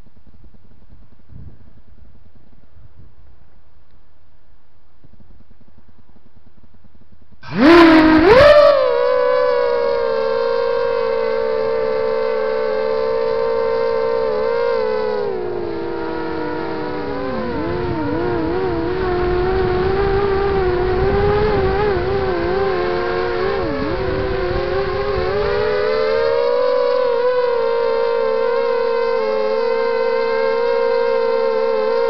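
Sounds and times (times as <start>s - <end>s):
quadcopter motors whining: 7.4s - 32.0s.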